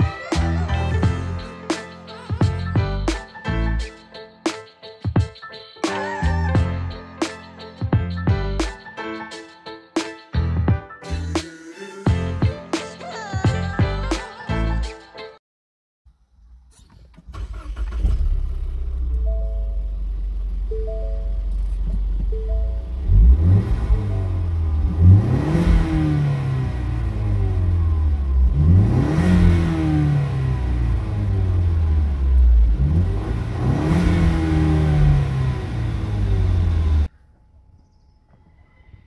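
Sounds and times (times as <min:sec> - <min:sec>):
car engine idling and revving: 0:16.3 - 0:37.2.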